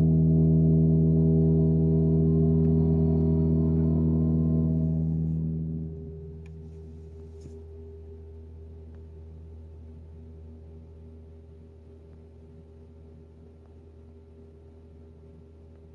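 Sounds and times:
heat pump humming: 0.0s - 12.6s
faint low hum: 0.0s - 15.9s.

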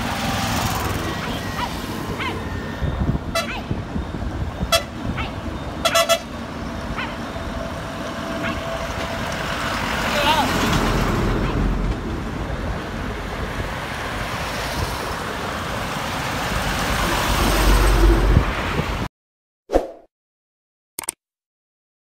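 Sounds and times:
lorry engine and tyre rumble: 0.0s - 19.1s
steady traffic: 0.0s - 19.1s
wind noise on microphone: 2.7s - 5.8s, 17.1s - 19.1s
mouse-click effects: 21.0s - 21.2s.

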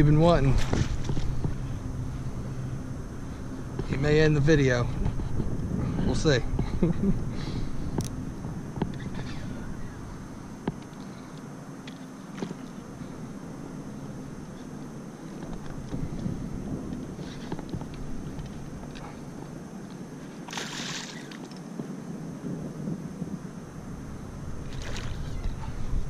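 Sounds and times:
light wind: 0.0s - 26.0s
water washing around boat: 15.2s - 21.8s, 24.5s - 26.0s.

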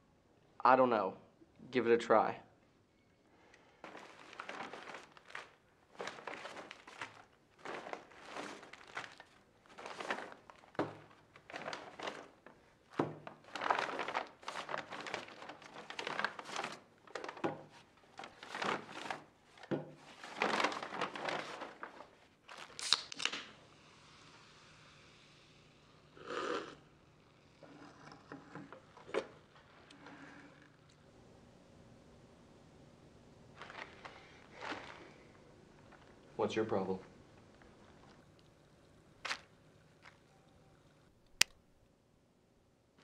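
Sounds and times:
paper bag rustling: 3.8s - 23.2s, 33.5s - 36.2s, 39.2s - 40.3s
items knocking on wooden table: 19.7s - 20.0s.

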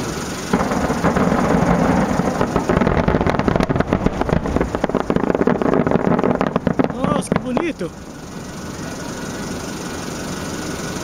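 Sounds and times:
low rumble: 0.0s - 8.2s
fireworks bursting and crackling: 0.0s - 11.0s.

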